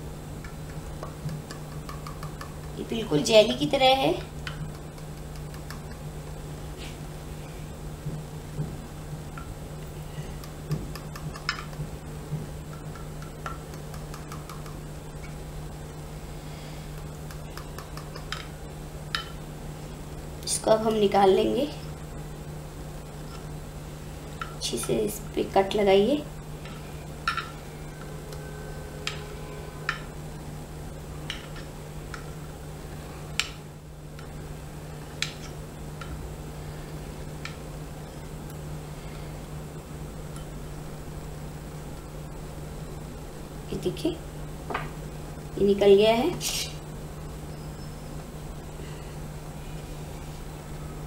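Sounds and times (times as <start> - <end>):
steady low hum: 0.0 - 51.0
clicks and taps on glass dish: 0.4 - 2.8.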